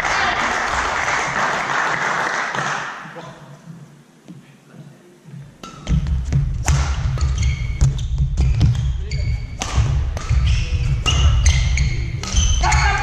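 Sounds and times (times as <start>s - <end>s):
rackets striking shuttlecock: 5.6s - 8.8s, 9.5s - 12.9s
shoes squeaking on court floor: 7.0s - 13.0s.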